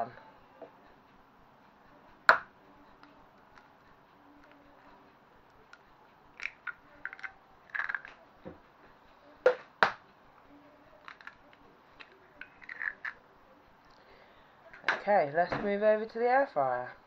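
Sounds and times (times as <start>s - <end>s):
egg tapped to crack: 2.3s - 2.5s, 9.5s - 10.0s
eggshell crackling: 5.6s - 8.2s, 11.0s - 13.2s.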